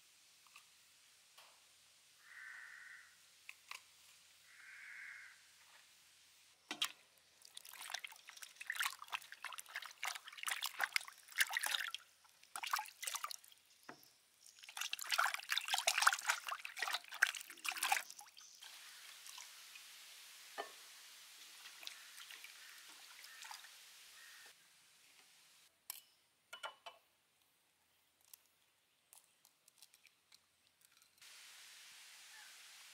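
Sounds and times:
water splashing in a steel bowl: 6.7s - 24.5s
water hissing: 14.4s - 24.6s, 31.2s - 32.9s.

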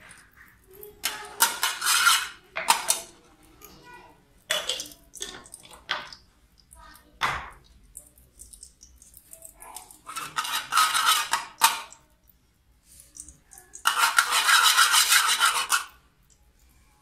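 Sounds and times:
metal spoon scraping saucepan: 1.0s - 3.0s, 9.8s - 12.0s, 13.7s - 16.0s.

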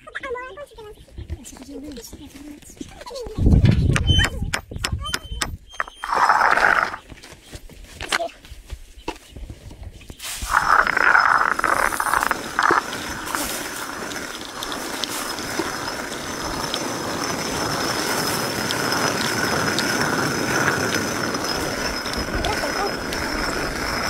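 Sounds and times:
millstone grinding rumble: 5.8s - 7.0s, 10.5s - 24.0s.

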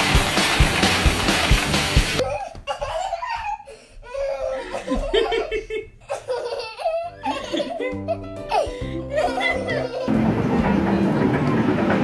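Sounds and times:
loud music with drum beat: 0.0s - 2.2s
people laughing: 4.4s - 10.3s.

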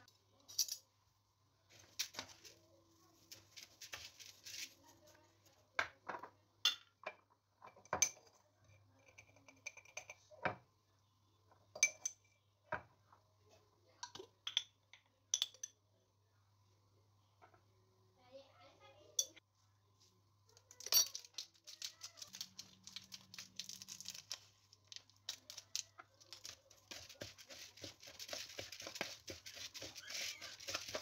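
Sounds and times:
faint steady low hum: 0.1s - 31.0s
metal spoon stirring in colander: 20.8s - 31.0s.

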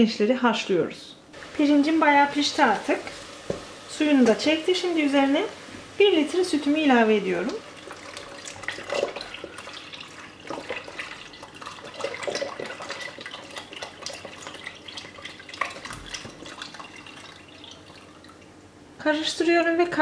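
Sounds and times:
milk pouring and splashing: 7.6s - 18.5s.

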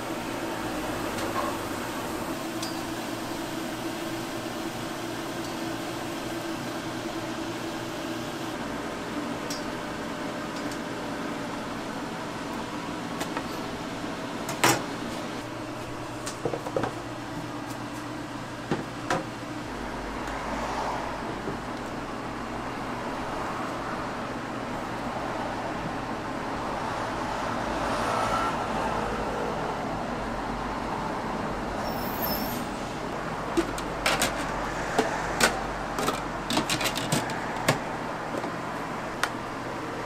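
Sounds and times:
mechanical hum of appliances: 0.0s - 40.0s
kitchen utensils clicking and knocking: 36.0s - 37.8s.

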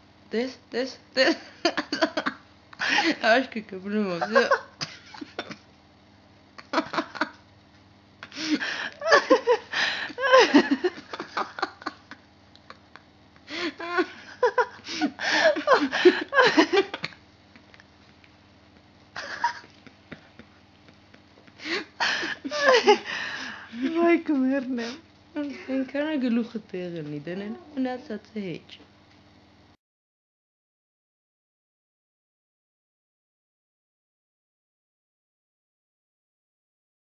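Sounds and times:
person laughing: 1.2s - 3.3s, 4.2s - 5.6s, 6.6s - 7.4s, 8.2s - 18.2s, 19.1s - 24.1s
person talking: 2.9s - 4.6s, 23.7s - 28.8s.

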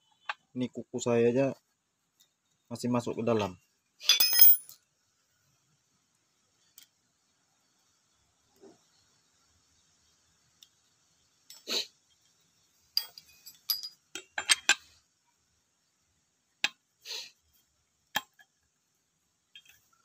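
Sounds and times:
metal tools clicking and clinking: 4.0s - 4.8s, 13.0s - 14.8s.

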